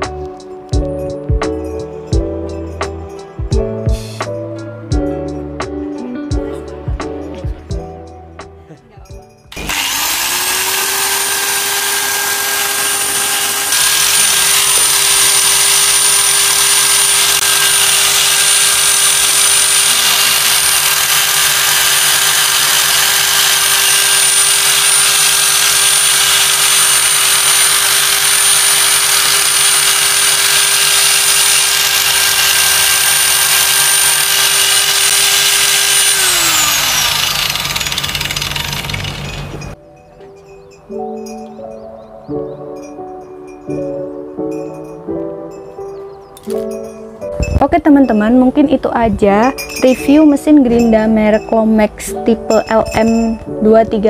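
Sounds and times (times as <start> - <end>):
angle grinder whine: 9.5 - 39.8.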